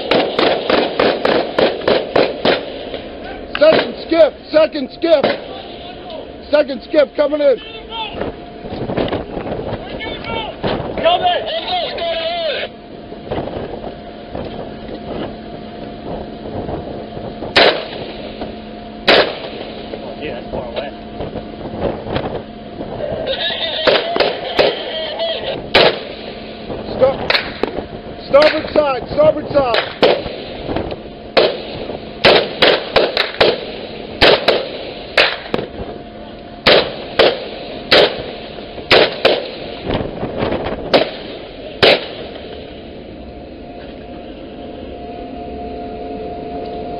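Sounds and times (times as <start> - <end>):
rifle shots: 0.0 - 3.0, 5.2 - 5.6, 17.6 - 18.2, 19.1 - 19.8, 23.8 - 24.9, 25.7 - 26.3, 29.7 - 30.6, 31.4 - 35.7, 36.6 - 39.8, 40.9 - 42.4
steady hum: 0.0 - 46.9.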